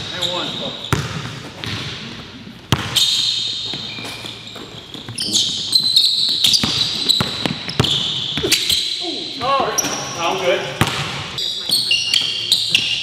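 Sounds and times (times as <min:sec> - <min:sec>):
sneakers squeaking: 0:00.0 - 0:13.0
basketball bouncing on wooden floor: 0:00.9 - 0:01.9, 0:02.7 - 0:03.0, 0:04.6 - 0:08.6, 0:10.8 - 0:12.9.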